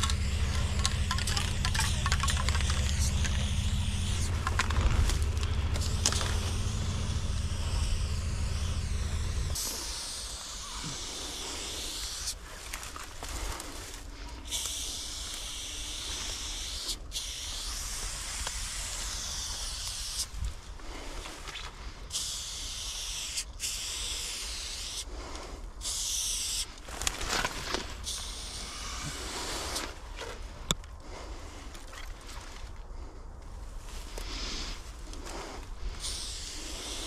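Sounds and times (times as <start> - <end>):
spray paint can hissing: 0.0 - 12.4, 14.5 - 20.4, 22.1 - 25.1, 25.8 - 26.7, 28.0 - 29.9, 35.9 - 37.0.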